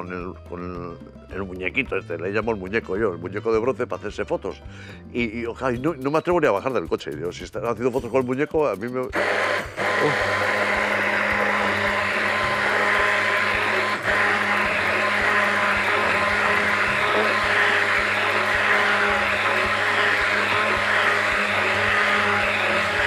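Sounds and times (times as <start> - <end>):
immersion blender running: 9.1 - 23.0.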